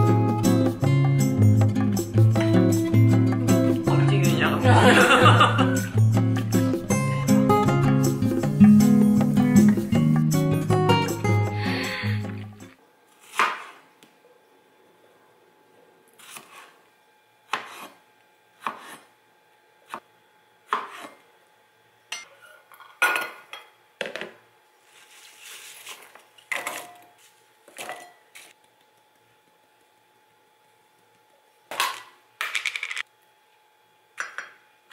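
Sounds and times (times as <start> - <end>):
knife cutting on plastic board: 16.2 - 16.8, 17.5 - 18.0, 18.6 - 19.1
apple pieces clattering into bowl: 31.7 - 33.0.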